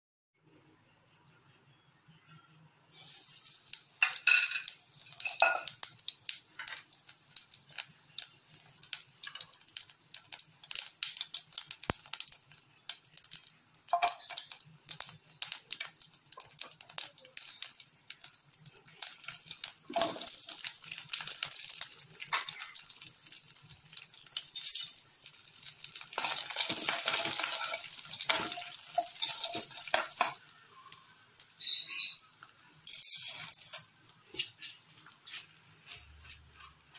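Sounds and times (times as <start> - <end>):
food sizzling in oil: 2.9 - 36.9
spoon clinking and scraping pan: 4.0 - 5.9, 13.9 - 14.6, 24.5 - 25.0, 26.1 - 30.4, 31.6 - 36.9.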